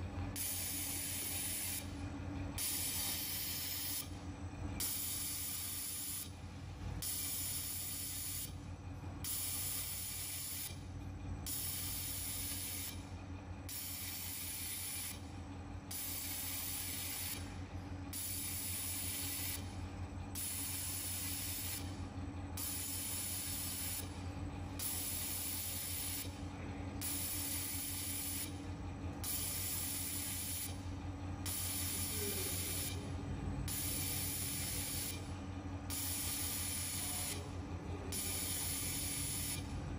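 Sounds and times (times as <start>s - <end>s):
steady machine hum: 0.0s - 39.9s
laser welder hiss: 0.4s - 1.9s, 2.6s - 4.1s, 4.8s - 6.3s, 16.0s - 17.4s, 18.2s - 19.6s, 29.3s - 30.7s, 33.7s - 35.2s, 36.0s - 37.4s, 38.2s - 39.6s.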